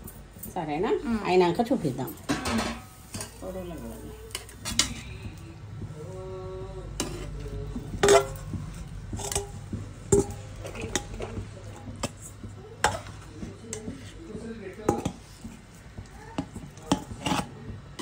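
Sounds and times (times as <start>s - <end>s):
metal spoon scraping a pot: 2.0s - 5.4s, 7.0s - 15.7s, 16.4s - 18.0s.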